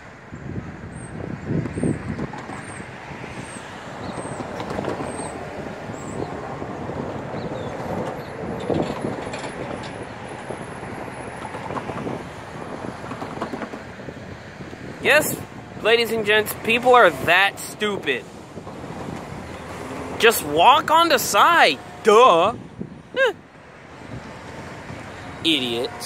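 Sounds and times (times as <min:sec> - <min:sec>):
diesel locomotives rumbling: 0:00.0 - 0:26.0
wind on microphone: 0:00.3 - 0:26.0.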